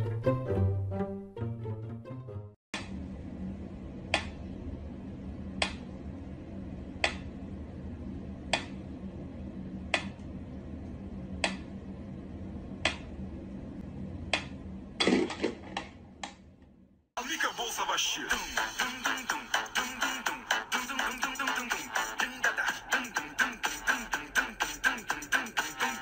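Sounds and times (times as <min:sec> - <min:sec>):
low hum: 0:02.8 - 0:17.0.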